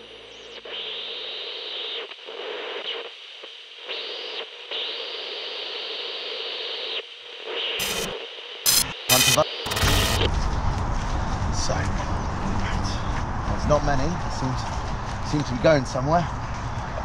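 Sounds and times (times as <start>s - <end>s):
two-way radio static hiss: 0.0s - 10.3s.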